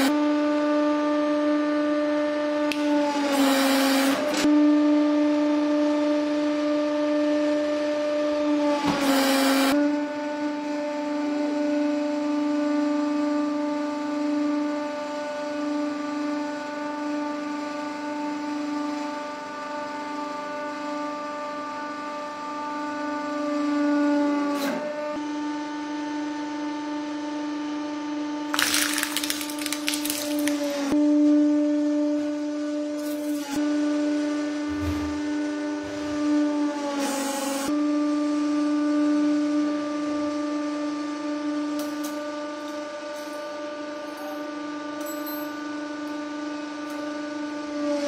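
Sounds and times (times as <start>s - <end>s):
hydraulic press humming whine: 0.0s - 48.0s
plastic crunching crackle: 28.5s - 30.9s.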